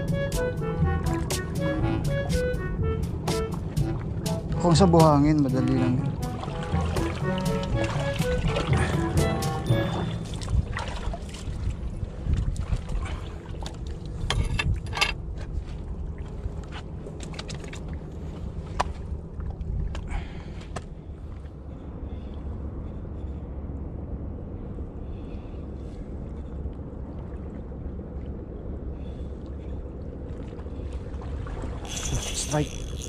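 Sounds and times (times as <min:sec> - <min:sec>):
wind rumble on microphone: 0:07.7 - 0:33.0.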